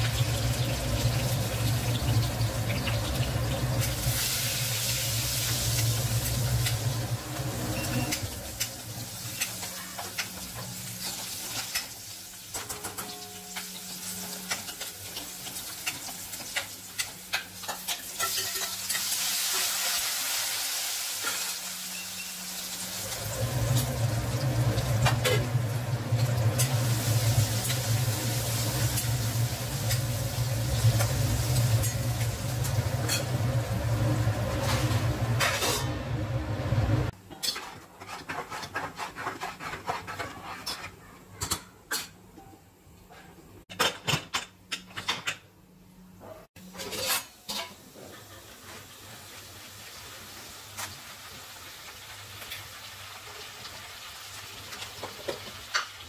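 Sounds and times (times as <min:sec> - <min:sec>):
potatoes sizzling in oil: 0:00.0 - 0:12.5, 0:13.2 - 0:35.4, 0:46.8 - 0:56.0.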